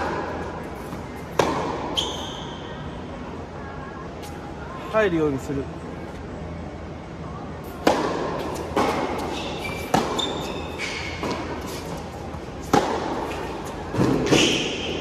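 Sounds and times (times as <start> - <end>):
racket hitting tennis ball: 0.0 - 2.1, 7.8 - 15.0
shoes squeaking on court: 0.7 - 2.6, 8.5 - 15.0.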